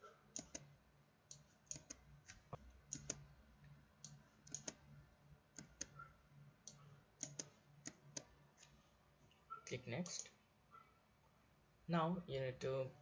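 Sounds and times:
computer mouse clicking: 0.3s - 0.7s, 1.3s - 4.9s, 5.5s - 8.8s
keyboard keys clicking: 0.3s - 0.7s, 4.0s - 4.8s, 6.6s - 8.3s.

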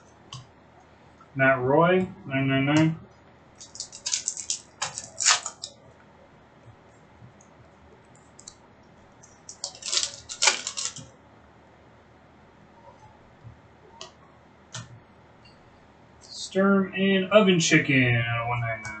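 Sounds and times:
trading cards crackling: 3.6s - 5.9s, 9.2s - 11.1s.

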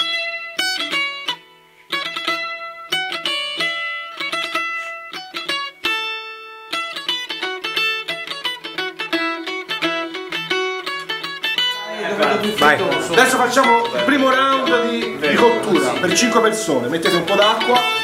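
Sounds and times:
plucked string melody: 0.0s - 18.0s.

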